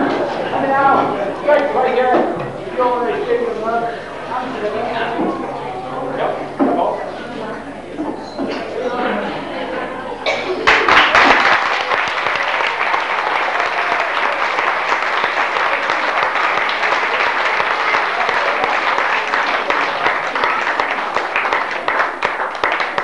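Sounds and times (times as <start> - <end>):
crowd applauding: 10.4 - 23.0.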